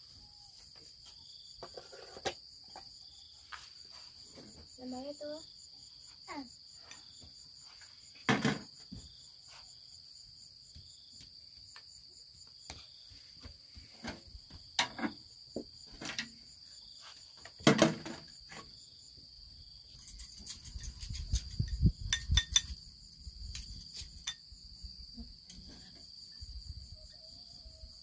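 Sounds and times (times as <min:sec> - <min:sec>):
insects trilling: 0:00.0 - 0:28.0.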